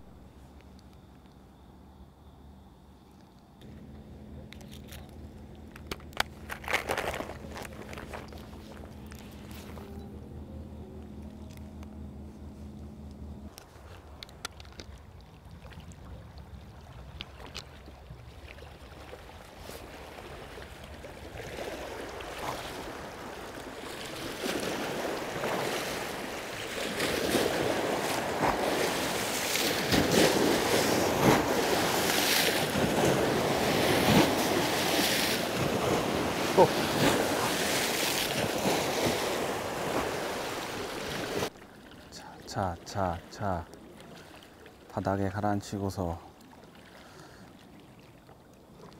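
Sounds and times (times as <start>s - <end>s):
waves splashing against rocks: 17.3s - 46.1s.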